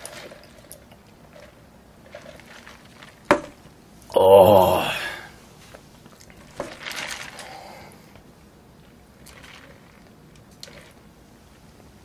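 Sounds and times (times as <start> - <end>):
sipping through a straw: 9.2 - 11.0.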